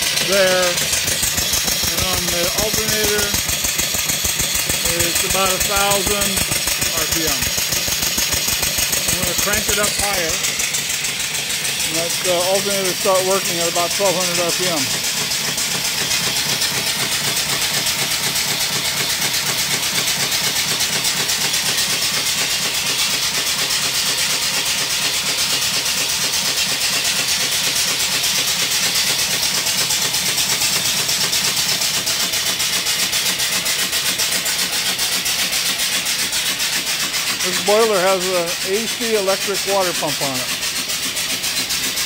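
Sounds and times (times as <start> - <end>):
steam engine exhaust hissing: 0.0 - 42.0.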